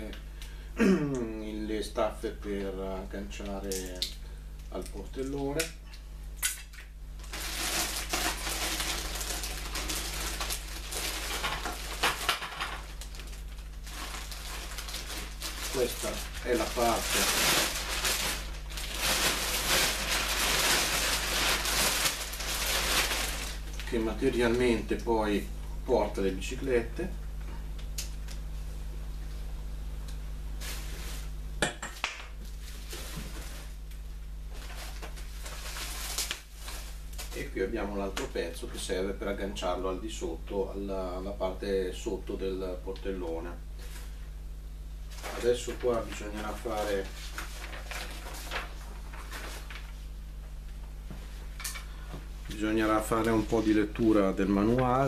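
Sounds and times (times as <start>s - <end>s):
plastic bag crinkling: 7.2s - 25.0s, 34.5s - 37.6s, 45.1s - 50.1s, 52.5s - 55.0s
plastic wrapping rustling: 7.2s - 25.2s, 30.6s - 31.4s, 32.4s - 33.9s, 34.5s - 38.3s, 45.1s - 50.2s, 51.1s - 55.0s.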